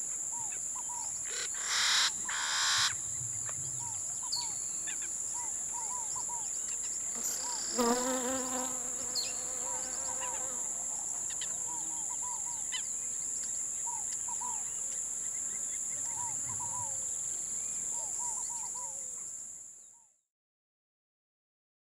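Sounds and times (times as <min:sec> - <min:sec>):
insects droning: 0:00.0 - 0:20.0
small birds chirping: 0:00.3 - 0:10.6.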